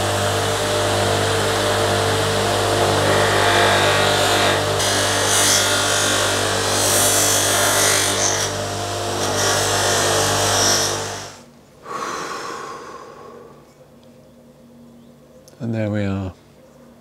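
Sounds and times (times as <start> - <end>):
bench buffer motor hum: 0.0 - 11.4.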